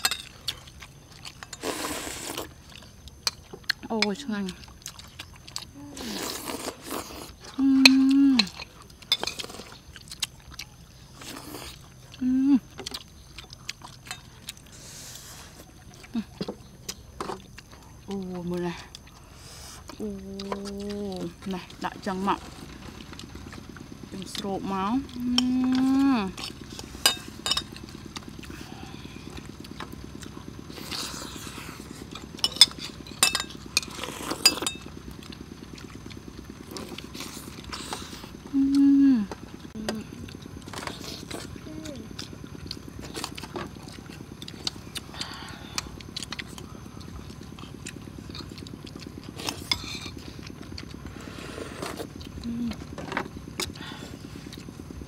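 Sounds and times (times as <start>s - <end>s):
chewing: 0.0s - 55.0s
person humming: 7.6s - 8.6s, 12.2s - 12.6s, 38.5s - 40.2s, 52.4s - 52.8s
spoons clinking on plates: 27.1s - 27.7s.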